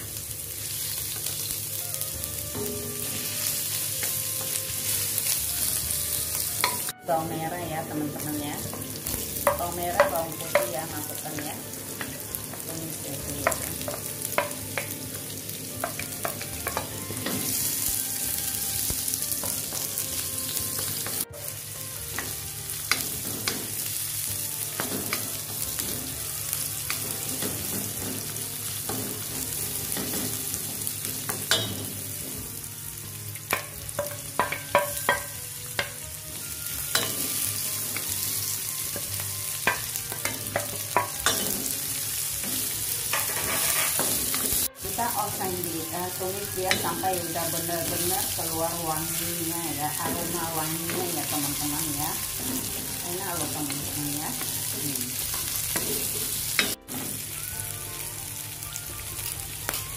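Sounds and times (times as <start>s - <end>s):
shallots sizzling in hot oil: 0.0s - 59.9s
wooden spatula scraping and knocking pan: 42.5s - 44.7s.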